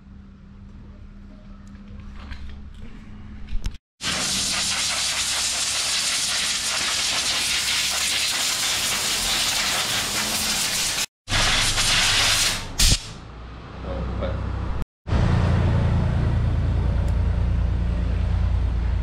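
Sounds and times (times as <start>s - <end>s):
steady loud hiss: 4.0s - 13.2s.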